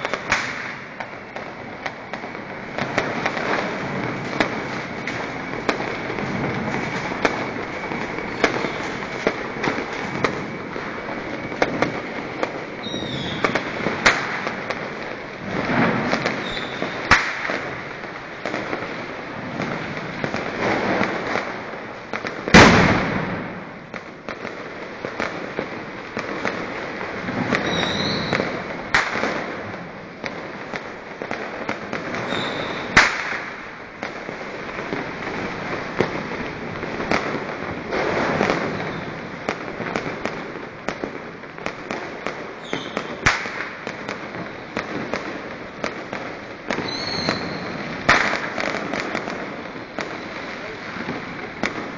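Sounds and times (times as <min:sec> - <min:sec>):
firecrackers crackling: 0:00.0 - 0:51.9
loud firework blast: 0:00.0 - 0:51.9
sharp single cracks: 0:17.1 - 0:17.6, 0:33.0 - 0:33.6, 0:43.2 - 0:43.8.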